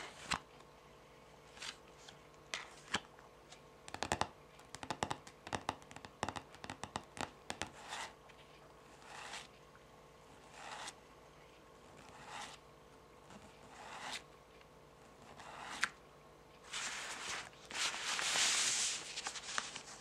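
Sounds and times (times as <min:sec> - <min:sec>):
fingernails tapping on cards: 0:03.9 - 0:07.8.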